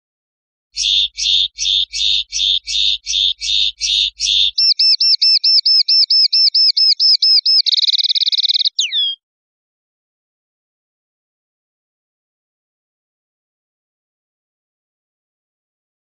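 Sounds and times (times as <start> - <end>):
linnet singing: 0.8 - 9.2.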